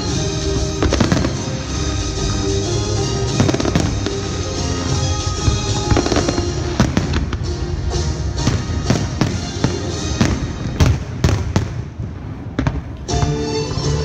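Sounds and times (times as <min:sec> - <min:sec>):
music playing: 0:00.0 - 0:11.7, 0:13.0 - 0:14.0.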